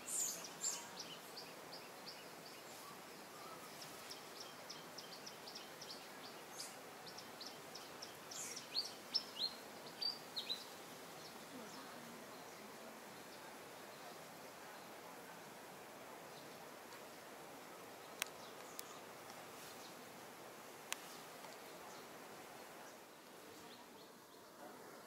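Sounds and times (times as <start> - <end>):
bird chirping: 0.0 - 12.6, 18.0 - 20.0.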